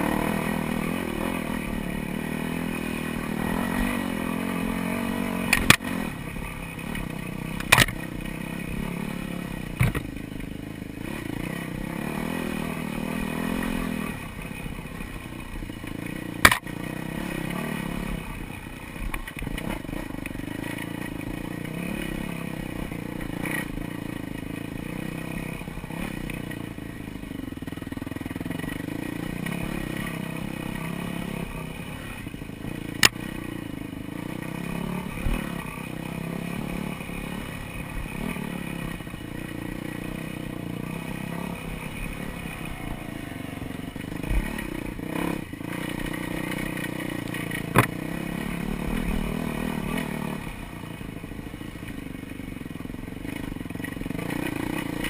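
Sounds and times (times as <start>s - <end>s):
dirt bike engine revving: 0.0s - 55.0s
bike knocking over bumps: 9.8s - 10.1s.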